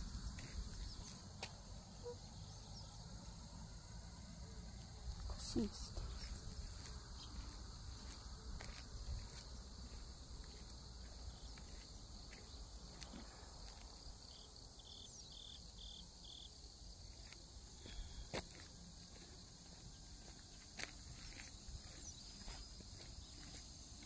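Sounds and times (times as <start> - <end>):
faint footsteps: 0.0 - 1.6, 4.8 - 14.0, 17.2 - 24.0
insects chirping: 0.0 - 24.0.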